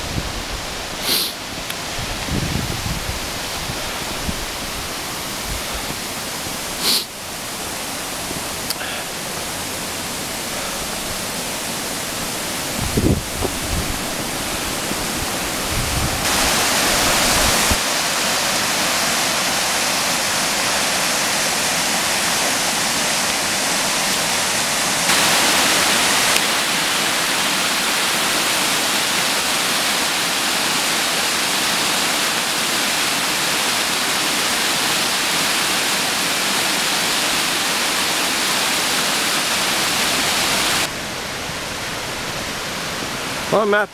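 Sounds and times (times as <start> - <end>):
wind buffeting microphone: 0.0 - 0.9, 1.5 - 6.0, 12.2 - 17.8
creek rushing over rocks: 0.0 - 43.9.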